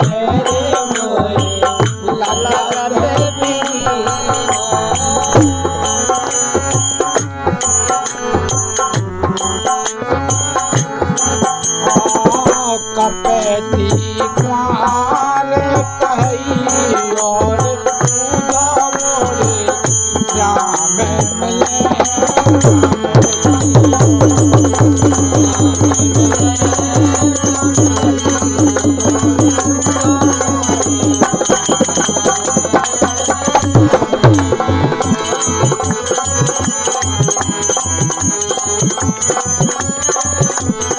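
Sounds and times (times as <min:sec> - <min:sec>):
hand drum beating: 0:00.0 - 0:40.9
harmonium melody: 0:00.0 - 0:40.9
hand cymbals jingling: 0:16.8 - 0:40.9.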